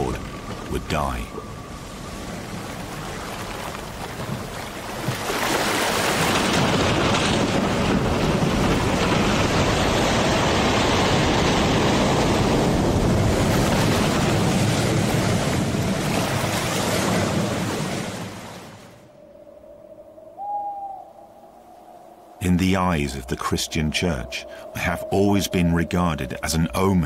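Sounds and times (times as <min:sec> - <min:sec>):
waves breaking: 0:00.0 - 0:19.1
wind: 0:00.0 - 0:27.0.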